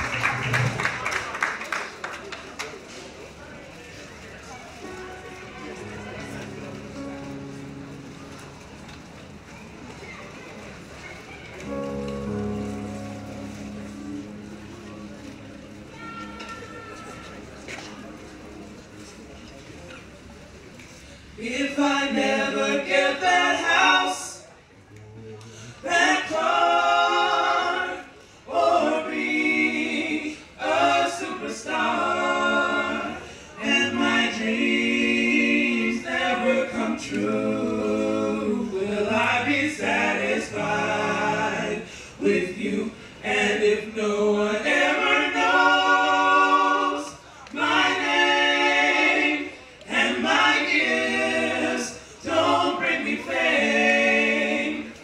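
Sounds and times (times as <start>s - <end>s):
a cappella gospel group singing: 21.4s - 24.4s, 25.8s - 55.0s.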